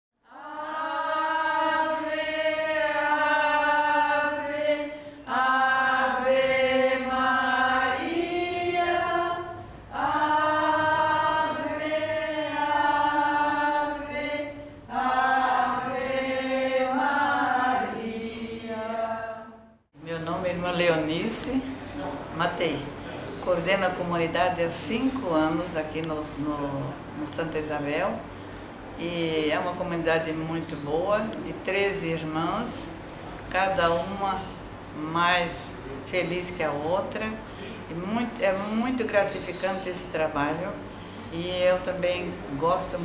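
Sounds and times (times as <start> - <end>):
women singing religious chant: 0.2 - 19.8.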